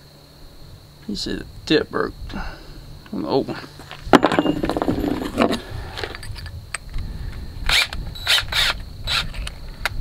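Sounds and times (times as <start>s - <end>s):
drill short rasping bursts: 7.7s - 9.3s.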